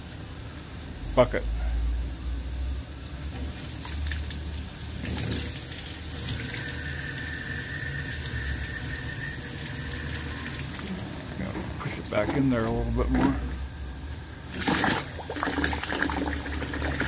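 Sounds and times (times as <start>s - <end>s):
steam and water hissing: 3.3s - 13.6s
thin steady whistle: 6.6s - 10.7s.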